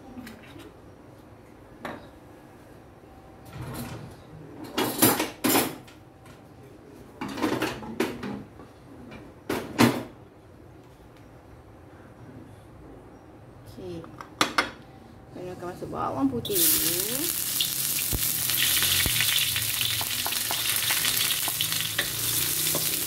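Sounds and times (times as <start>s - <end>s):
utensils and dishes clattering: 16.7s - 23.0s.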